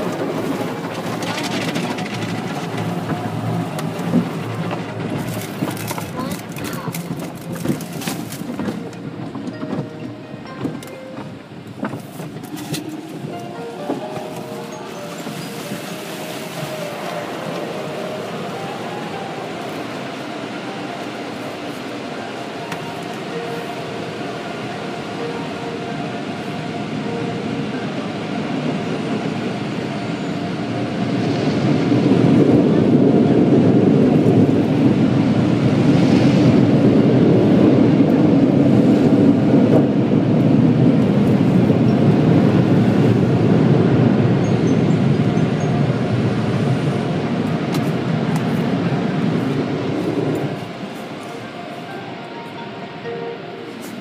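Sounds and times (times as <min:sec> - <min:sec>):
car wash blowers rushing air: 0:00.0 - 0:54.0.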